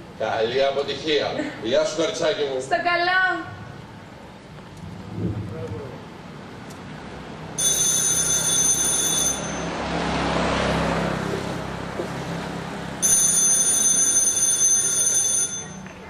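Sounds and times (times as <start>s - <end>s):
telephone bell ringing: 7.6s - 9.9s, 13.0s - 16.0s.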